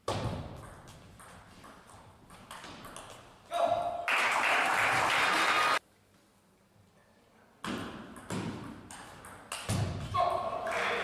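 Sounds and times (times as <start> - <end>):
crowd applause: 4.1 - 5.8.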